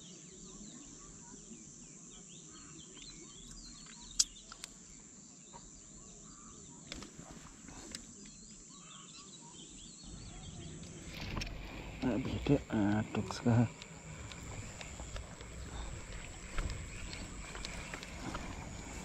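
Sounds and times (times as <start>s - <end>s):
small birds chirping: 0.0s - 19.0s
sharp clicks: 3.0s - 4.8s, 13.6s - 18.5s
steady high hiss: 9.8s - 19.0s.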